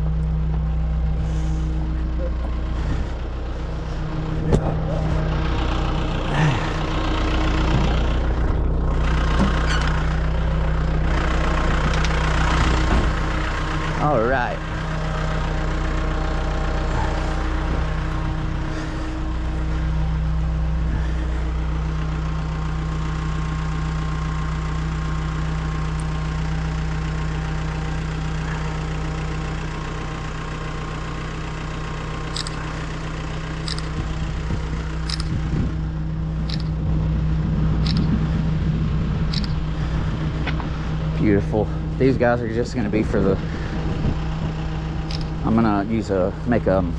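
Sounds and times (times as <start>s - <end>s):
diesel engine idling: 0.0s - 46.9s
short high clicks: 33.7s - 33.9s.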